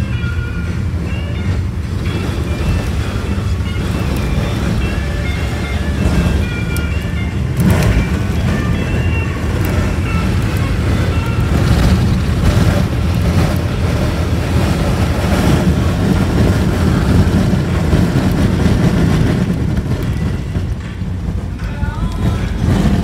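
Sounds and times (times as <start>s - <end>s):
car driving on wet road: 0.0s - 23.0s
wind noise: 0.0s - 23.0s.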